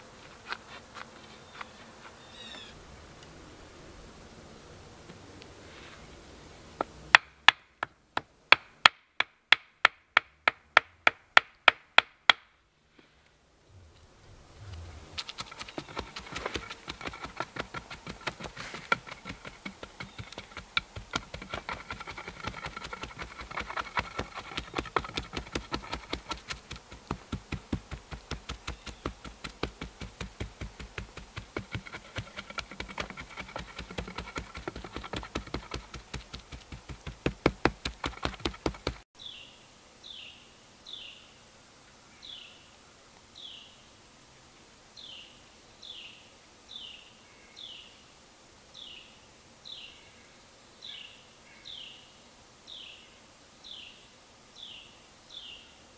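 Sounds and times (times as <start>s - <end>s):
bird chirping: 1.4s - 2.8s, 20.0s - 20.5s, 28.6s - 29.3s.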